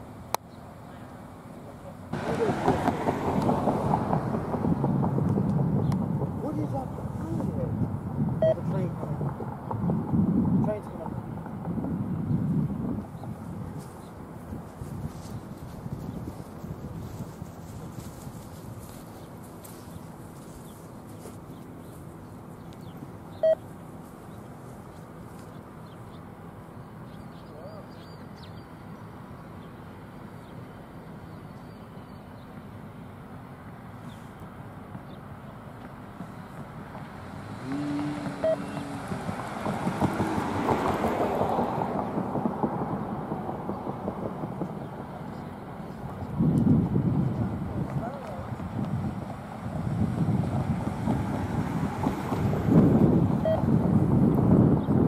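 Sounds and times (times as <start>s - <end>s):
distant train rumble: 0.0s - 54.8s
wind gust on microphone: 2.1s - 19.1s, 37.4s - 55.0s
steady tone: 37.6s - 40.8s
short loud beep: 38.4s - 38.8s.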